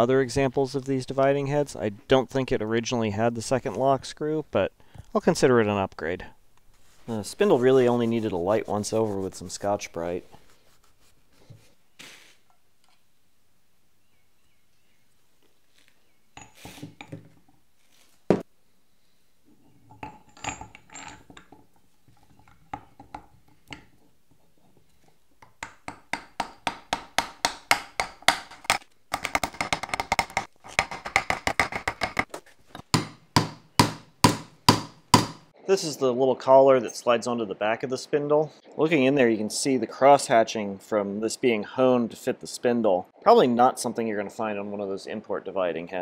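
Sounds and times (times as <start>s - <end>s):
metal parts clinking: 19.8s - 23.8s.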